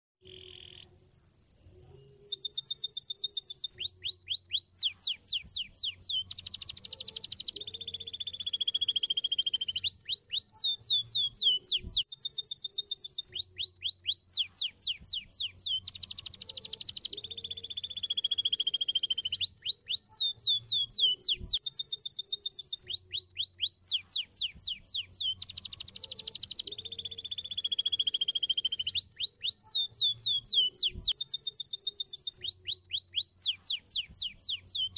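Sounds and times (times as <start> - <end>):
canary singing trills: 0.2 - 34.9.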